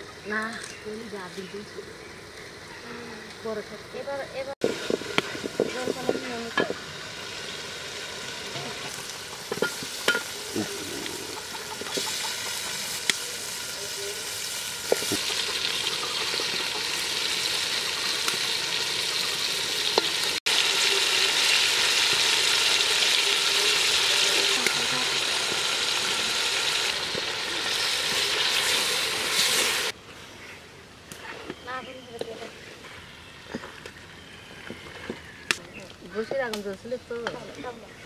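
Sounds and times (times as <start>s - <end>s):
chicken sizzling in hot oil: 4.6s - 30.0s.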